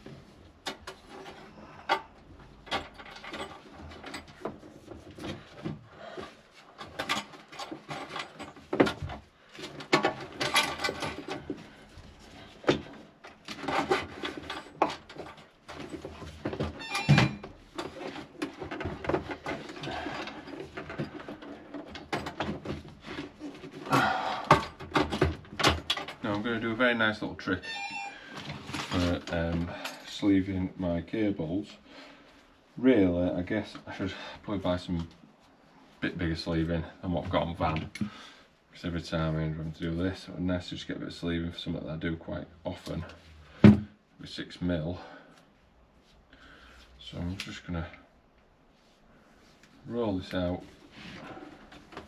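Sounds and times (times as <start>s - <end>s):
hands handling cables and tools: 0.0s - 26.8s, 27.6s - 30.1s, 45.4s - 52.0s.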